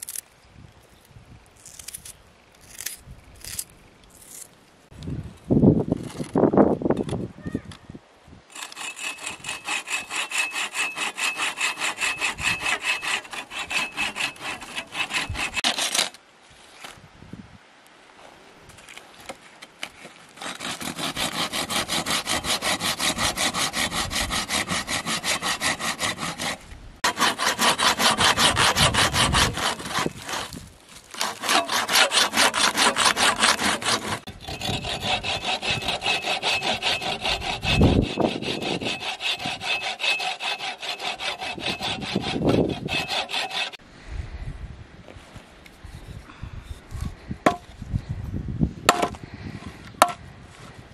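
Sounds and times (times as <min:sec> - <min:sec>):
hand saw cutting wood: 0:08.5 - 0:16.2, 0:20.3 - 0:43.8.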